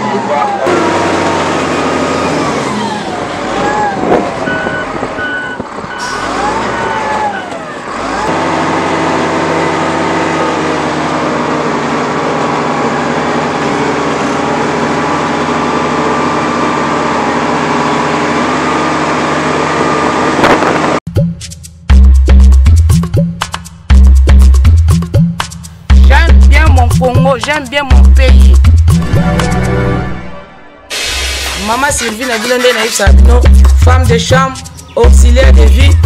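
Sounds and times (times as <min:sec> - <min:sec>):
wheel loader diesel engine: 0:00.0 - 0:21.0
beeping alarm: 0:04.4 - 0:07.6.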